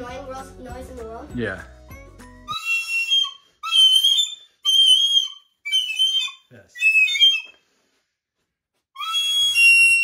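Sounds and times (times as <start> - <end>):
shrill toy whistle blasts: 2.5 - 7.6, 9.0 - 10.0.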